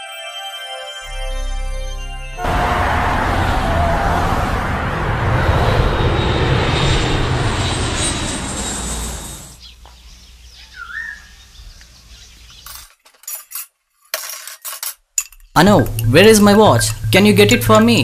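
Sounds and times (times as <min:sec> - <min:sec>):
passing vehicles rushing: 0:02.4 - 0:09.6
bird chirp: 0:09.6 - 0:12.9.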